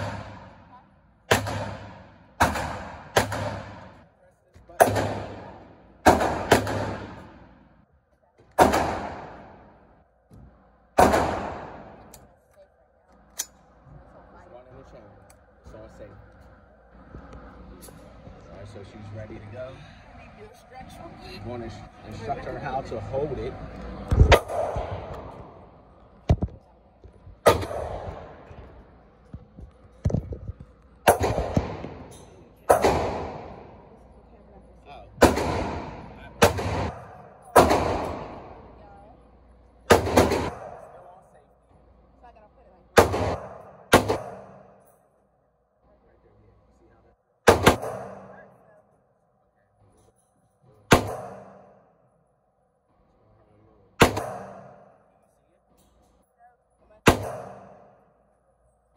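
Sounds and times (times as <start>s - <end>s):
gunshots echoing indoors: 0.0s - 4.1s, 4.8s - 7.7s, 8.5s - 10.0s, 10.9s - 12.2s, 24.2s - 25.6s, 27.4s - 28.9s, 31.0s - 33.9s, 35.1s - 38.8s, 39.8s - 41.1s, 43.0s - 44.9s, 47.4s - 48.6s, 50.9s - 51.9s, 54.0s - 55.1s, 57.0s - 58.2s.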